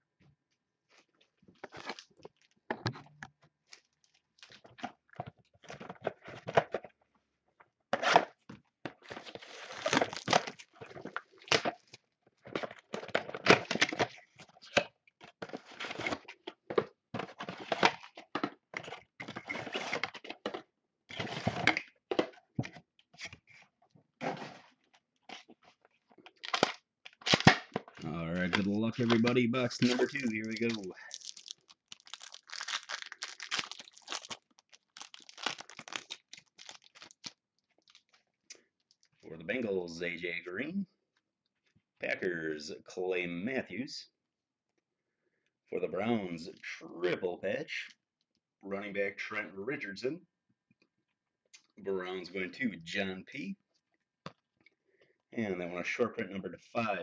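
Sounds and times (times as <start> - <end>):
plastic wrapping crinkling and tearing: 9.2 - 11.9, 28.4 - 38.2.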